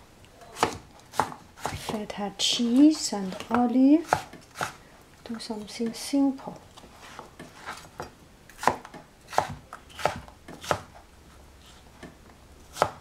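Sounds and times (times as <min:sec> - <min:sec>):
knife chopping on cutting board: 0:00.6 - 0:02.8, 0:03.4 - 0:04.8, 0:08.6 - 0:10.9, 0:12.7 - 0:13.0.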